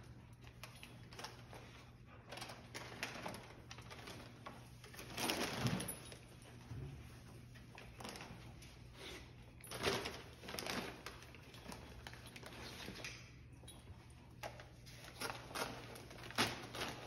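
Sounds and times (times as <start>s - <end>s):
wrapping paper rustling: 9.7s - 13.1s, 14.5s - 17.0s.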